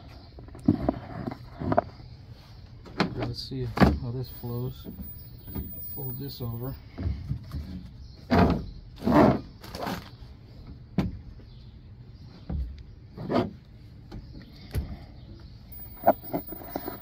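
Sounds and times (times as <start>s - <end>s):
hinged panels scraping and knocking: 15.9s - 17.0s.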